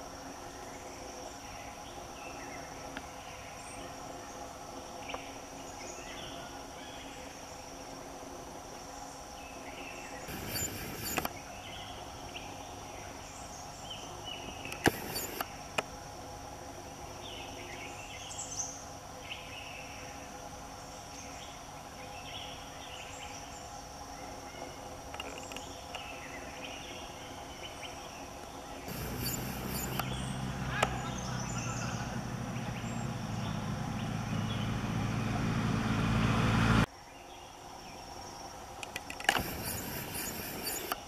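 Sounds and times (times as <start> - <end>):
brief noisy bursts: 10.3 - 11.3, 14.8 - 15.5, 28.9 - 32.0, 39.3 - 41.0
high-pitched insect drone: 10.3 - 11.3, 14.8 - 15.4, 28.9 - 35.3, 39.3 - 41.0
short bird calls: 10.3 - 11.8, 14.6 - 15.5, 28.8 - 35.4, 39.4 - 41.0.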